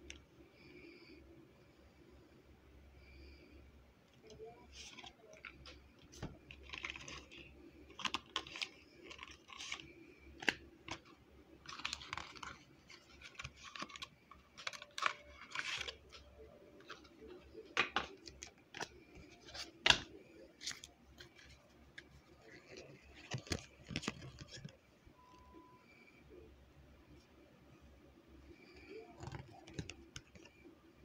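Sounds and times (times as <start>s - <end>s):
cards clicking and tapping: 17.6s - 21.4s.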